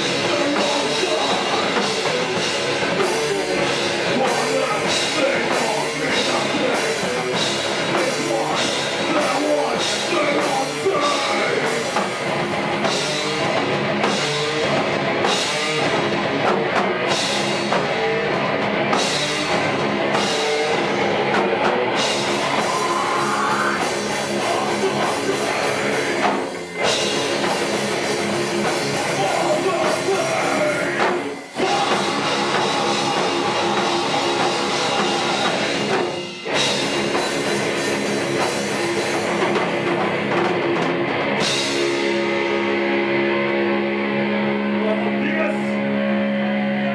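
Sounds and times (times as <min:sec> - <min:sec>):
live metal band playing: 0:00.0 - 0:46.9
person singing into microphone: 0:03.0 - 0:11.9, 0:22.4 - 0:26.3, 0:29.1 - 0:36.0.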